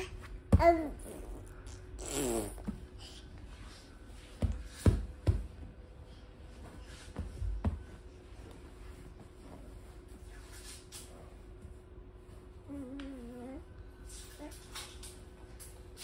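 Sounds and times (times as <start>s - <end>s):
baby babbling: 0.0s - 1.4s.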